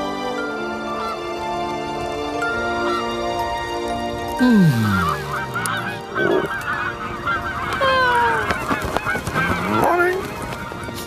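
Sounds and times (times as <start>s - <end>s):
cartoon geese honking: 4.6s - 9.9s.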